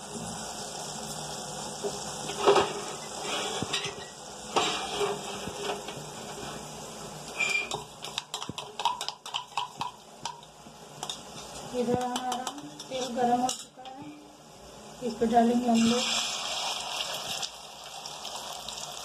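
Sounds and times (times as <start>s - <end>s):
metal spatula scraping a pot: 2.3s - 6.7s, 7.3s - 9.8s.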